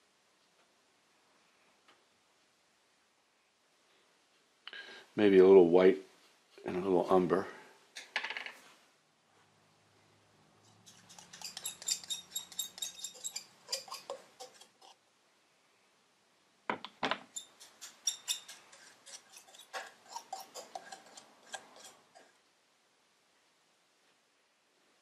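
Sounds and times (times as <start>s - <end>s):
paintbrush clinking in glass jar: 10.9s - 14.7s, 17.3s - 22.3s.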